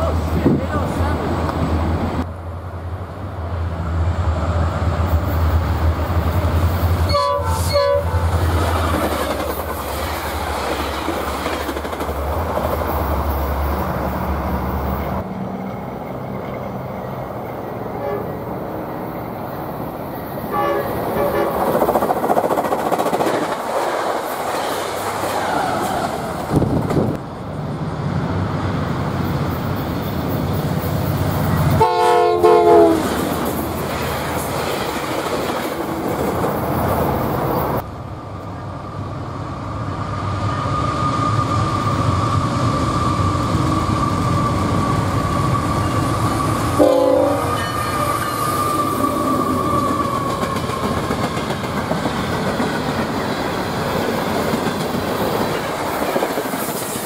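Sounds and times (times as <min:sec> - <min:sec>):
freight train rumbling and clacking: 0:00.0 - 0:57.0
locomotive horn chord: 0:07.1 - 0:08.2, 0:18.0 - 0:18.4, 0:20.5 - 0:21.6, 0:31.8 - 0:33.1, 0:46.8 - 0:48.0
high wheel squeal: 0:40.4 - 0:50.8.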